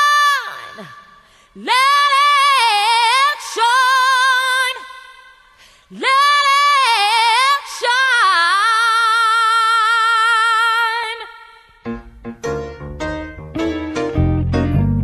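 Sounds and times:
woman singing unaccompanied: 1.6 - 5.2, 5.9 - 11.6.

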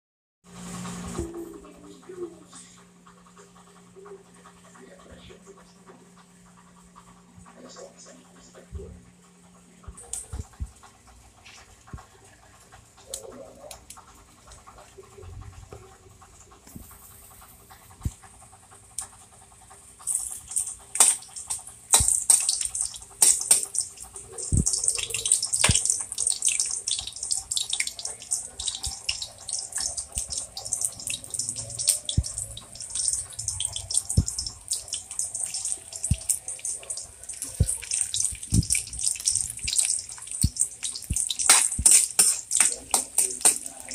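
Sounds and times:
garlic sizzling in hot oil: 20.0 - 43.9.

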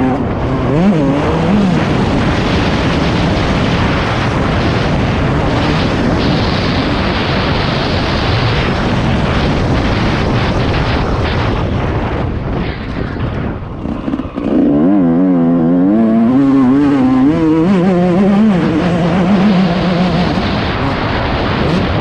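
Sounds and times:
dirt bike engine running hard: 0.0 - 22.0
wind buffeting microphone: 0.0 - 22.0
wavering pitched drone: 13.8 - 22.0.

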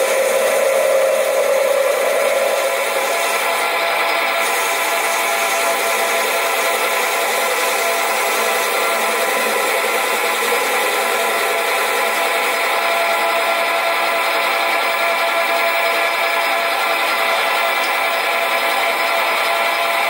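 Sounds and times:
cutting tool scraping metal: 0.0 - 12.2
metal lathe whining: 0.0 - 20.0.

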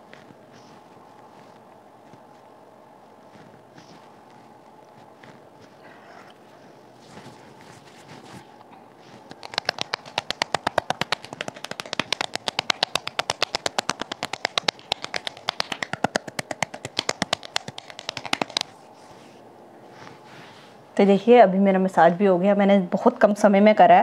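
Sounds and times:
fingers patting on skin: 0.0 - 2.5, 3.2 - 5.8, 9.0 - 19.2.

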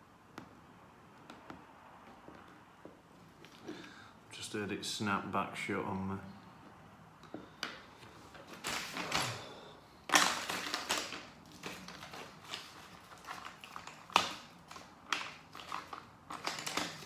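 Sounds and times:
plastic tools scraping: 7.5 - 17.0.

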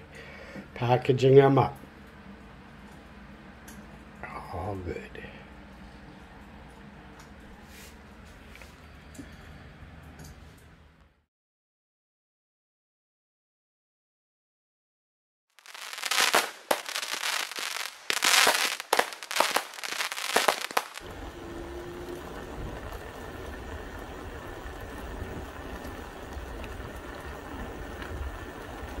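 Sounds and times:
steady outdoor rumble and hiss: 0.0 - 11.0, 15.7 - 29.0
loud crackling and popping: 15.6 - 21.4, 22.0 - 29.0.

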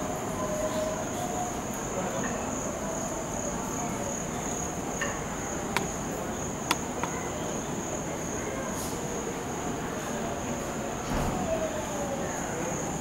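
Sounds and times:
crickets trilling: 0.2 - 9.6
sharp clicks: 6.6 - 7.2.

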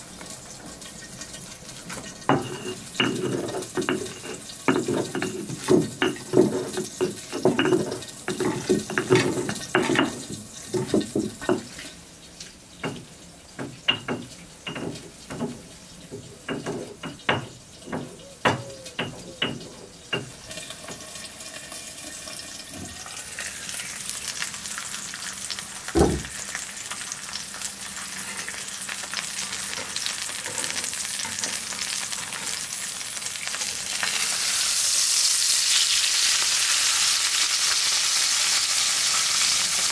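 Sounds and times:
steak sizzling: 0.0 - 39.9
mortar and pestle pounding: 2.3 - 11.7.

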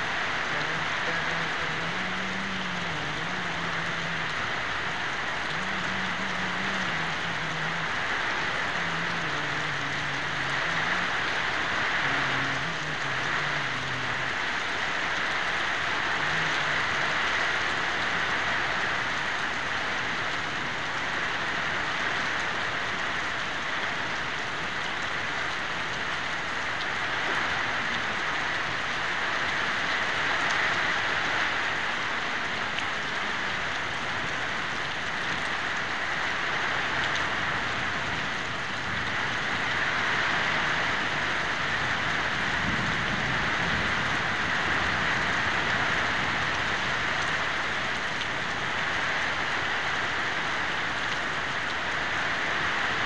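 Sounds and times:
rain falling: 0.0 - 53.0.

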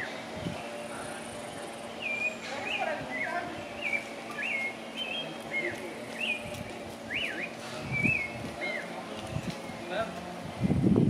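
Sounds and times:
bird whistled calls: 2.0 - 6.4, 7.1 - 9.0.

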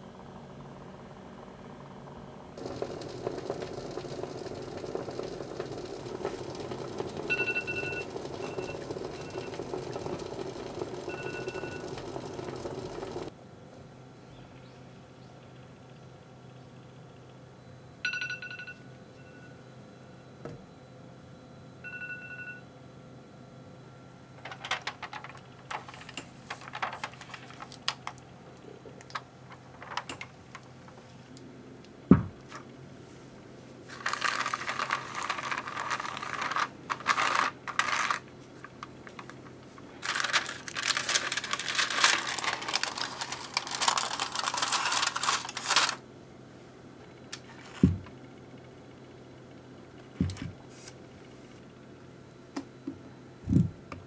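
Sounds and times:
aluminium foil crinkling: 24.4 - 28.2, 28.9 - 31.2, 33.9 - 46.0
sharp thump: 32.1 - 32.4.

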